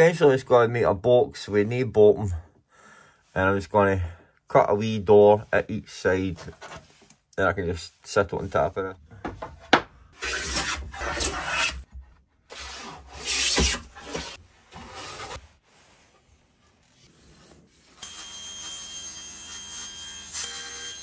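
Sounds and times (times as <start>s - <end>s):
hand plane shaving wood: 10.2s - 11.9s.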